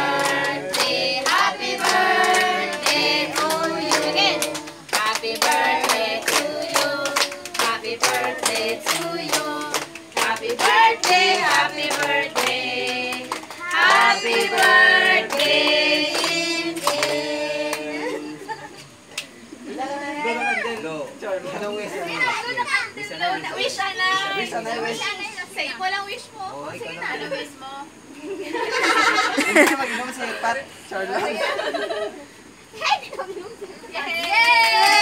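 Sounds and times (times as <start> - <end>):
women and children singing: 0.0 - 18.7
hands clapping: 0.1 - 17.8.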